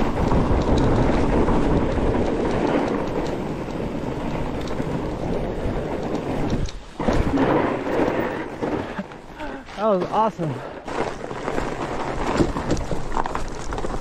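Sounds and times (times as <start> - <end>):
wind buffeting microphone: 0.0 - 9.4
bike tyres on icy snow: 0.0 - 14.0.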